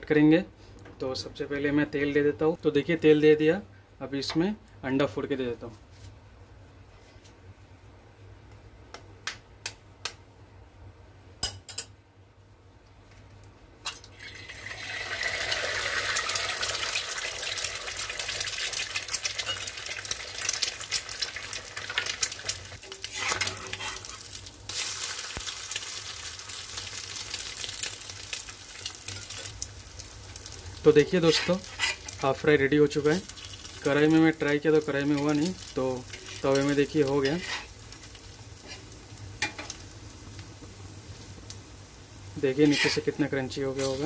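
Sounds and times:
egg sizzling in hot oil: 13.8s - 44.0s
metal spatula scraping: 22.8s - 24.3s, 31.1s - 32.2s, 36.1s - 37.8s, 38.6s - 39.7s, 42.5s - 44.0s.

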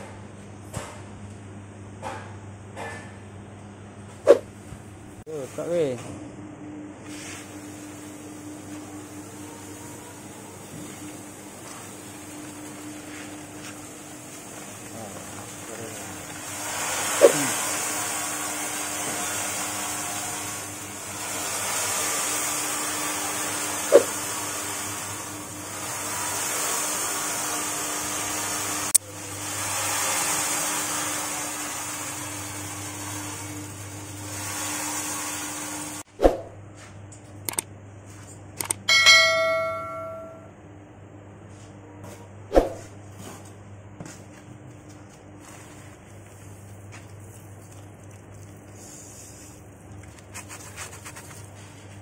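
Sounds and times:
electric motor humming: 7.8s - 36.0s
dried maggots rustling: 45.4s - 51.8s.

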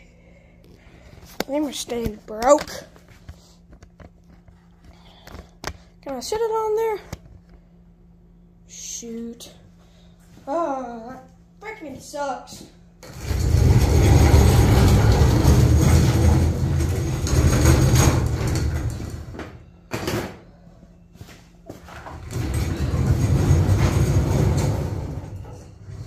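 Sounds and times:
metal tool box scraping on floor: 13.0s - 19.4s, 21.9s - 26.0s.

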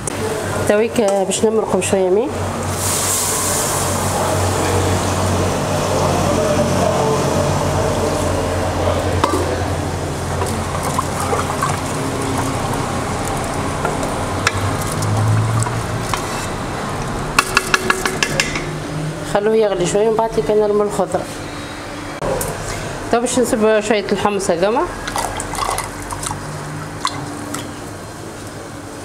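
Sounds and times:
sauce sizzling and bubbling: 10.0s - 17.2s
spoon stirring pot: 10.4s - 18.7s.

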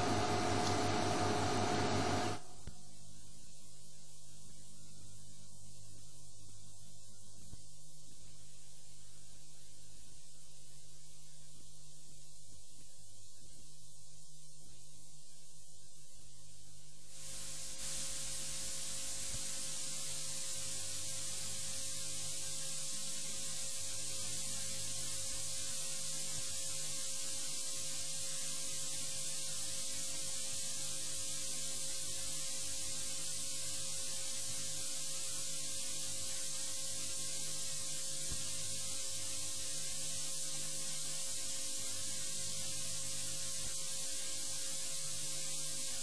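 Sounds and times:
electronic static and hiss: 0.0s - 46.0s
low electrical hum: 0.0s - 46.0s
faint click: 0.6s - 0.8s.

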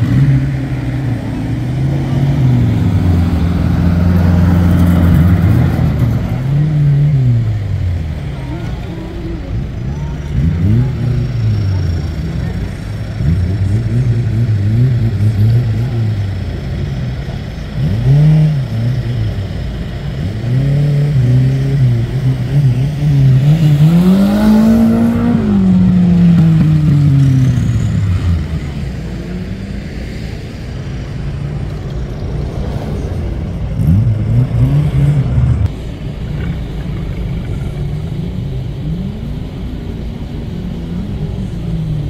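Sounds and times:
engine revving: 0.0s - 42.0s.

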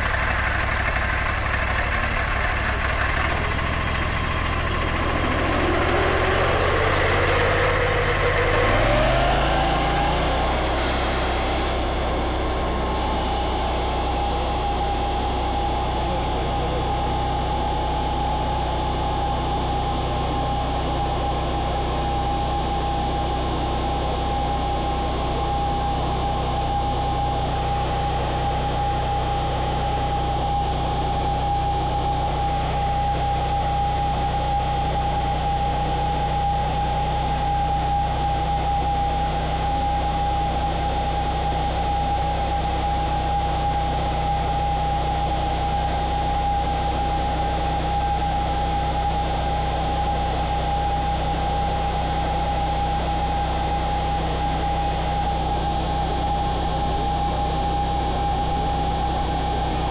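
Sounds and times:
high whine: 0.0s - 16.8s, 34.4s - 59.9s
sawmill engine drone: 0.0s - 59.9s.

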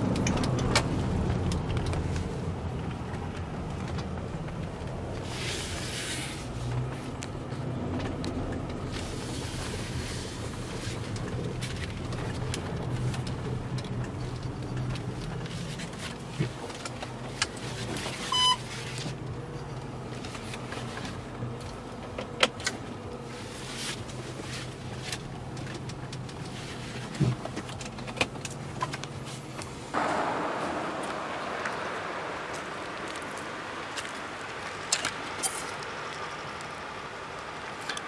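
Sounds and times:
car engine and road hum: 0.0s - 38.0s
short tone: 18.3s - 18.6s
steady outdoor hiss: 29.2s - 37.9s.

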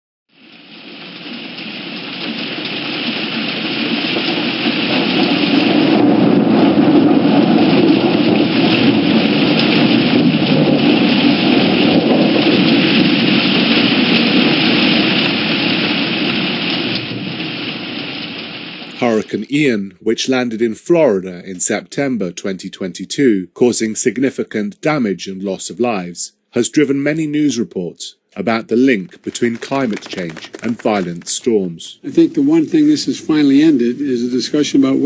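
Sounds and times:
steady rain: 0.3s - 23.0s, 28.4s - 35.0s
thunder: 0.4s - 19.0s.

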